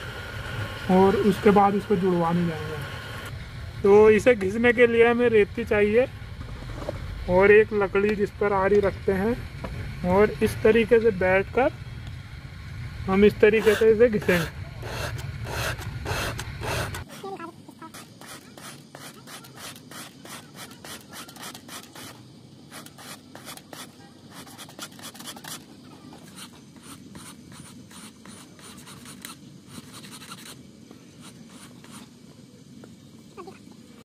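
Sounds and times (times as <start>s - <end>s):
file rasping on steel: 13.6s - 17.3s, 17.9s - 25.6s, 26.3s - 30.6s.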